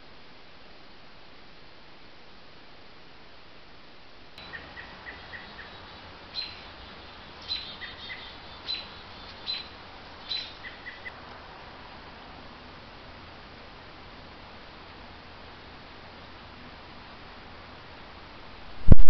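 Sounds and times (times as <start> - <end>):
background hiss: 0.0 - 19.0
high bird chirps: 4.4 - 11.1.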